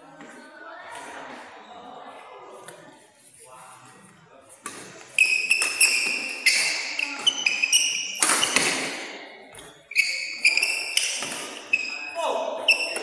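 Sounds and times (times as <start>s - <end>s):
shoes squeaking on court: 4.6s - 13.0s
racket striking shuttlecock: 4.7s - 9.7s, 10.6s - 11.8s.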